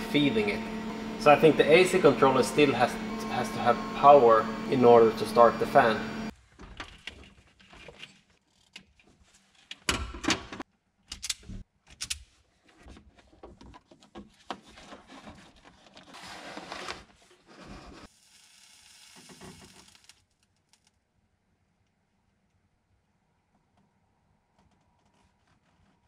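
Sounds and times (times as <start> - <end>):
handling knocks and rattles: 12.7 - 16.0.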